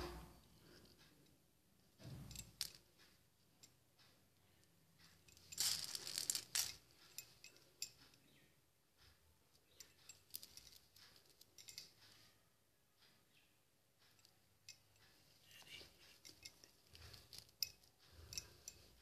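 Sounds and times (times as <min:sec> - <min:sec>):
plastic beads rattling on steel plate: 0:02.0 - 0:03.0, 0:05.0 - 0:08.1, 0:09.6 - 0:12.3, 0:15.5 - 0:19.0.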